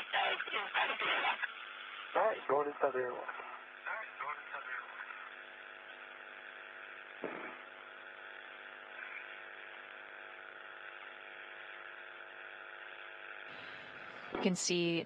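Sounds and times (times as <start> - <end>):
radio hum and hiss: 0.0 - 15.0
radio click: 7.2 - 7.7.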